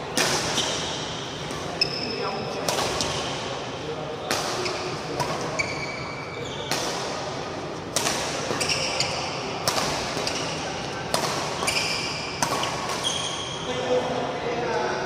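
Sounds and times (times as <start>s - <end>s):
rackets hitting shuttlecock: 0.1s - 2.0s, 2.6s - 3.5s, 4.2s - 5.8s, 6.6s - 7.3s, 7.9s - 13.5s
shoes squeaking on court: 1.6s - 2.3s, 4.6s - 6.8s, 8.4s - 9.5s, 10.1s - 13.8s.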